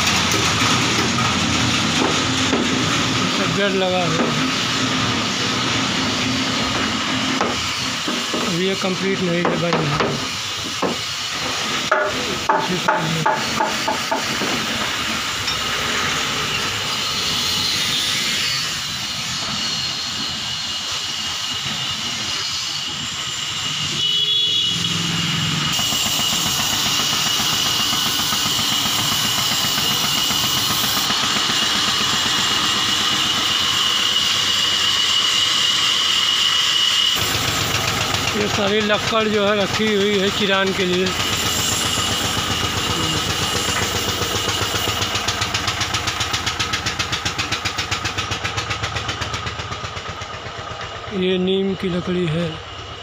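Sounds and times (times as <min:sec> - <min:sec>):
sawmill machinery hiss and whine: 0:00.0 - 0:53.0
sharp knocks: 0:09.4 - 0:11.0, 0:11.9 - 0:14.6.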